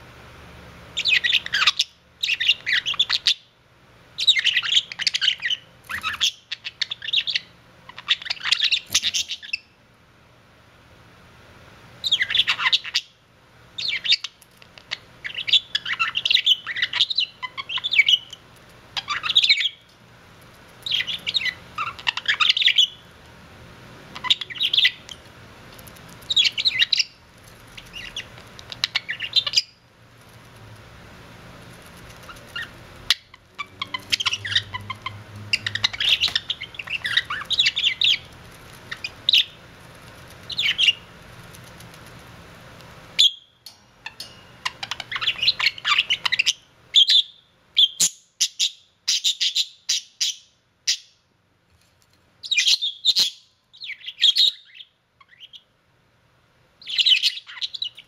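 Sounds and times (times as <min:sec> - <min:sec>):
budgerigars chattering and warbling: 0:01.0 - 0:03.5, 0:04.2 - 0:09.7, 0:12.0 - 0:13.1, 0:13.8 - 0:18.4, 0:19.0 - 0:19.8, 0:20.9 - 0:23.0, 0:24.2 - 0:25.2, 0:26.3 - 0:27.2, 0:27.8 - 0:29.8, 0:32.2 - 0:39.6, 0:40.4 - 0:41.1, 0:44.0 - 0:51.1, 0:56.8 - 0:58.0.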